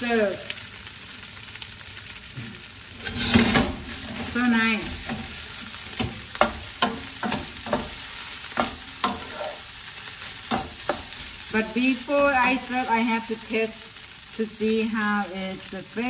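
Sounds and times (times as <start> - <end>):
rice sizzling in a frying pan: 0.0 - 16.0
spatula scraping a pan: 2.9 - 12.9.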